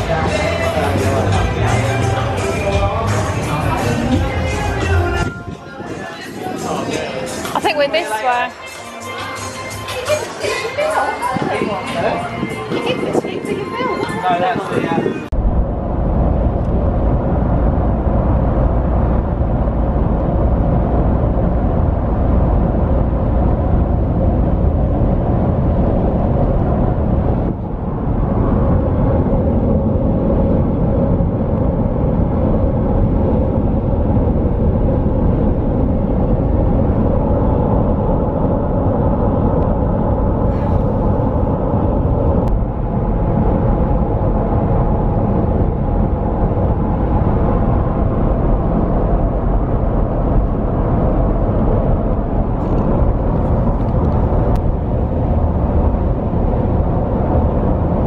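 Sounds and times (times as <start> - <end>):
car cabin road noise: 15.3 - 58.0.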